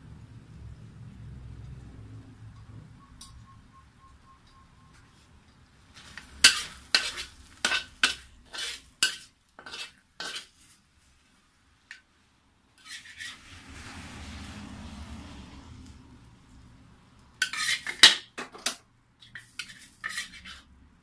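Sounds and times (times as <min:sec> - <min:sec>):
frying sizzle: 0:05.8 - 0:11.3, 0:12.8 - 0:16.7
metal spatula scraping a wok: 0:06.0 - 0:10.8, 0:12.8 - 0:14.6, 0:17.4 - 0:20.8.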